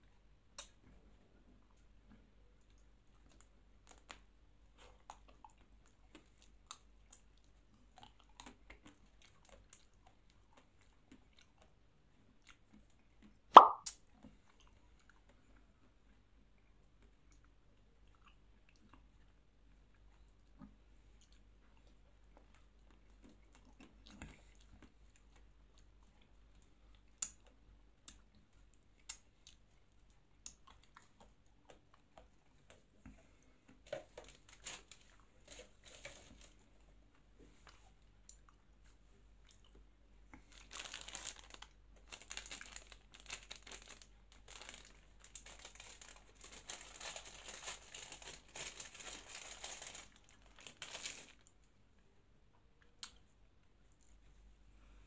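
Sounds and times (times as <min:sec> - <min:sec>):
chewing with crunches: 0:00.0 - 0:13.4, 0:14.1 - 0:51.8
plastic wrapper crinkling and tearing: 0:34.0 - 0:36.6, 0:40.4 - 0:51.5.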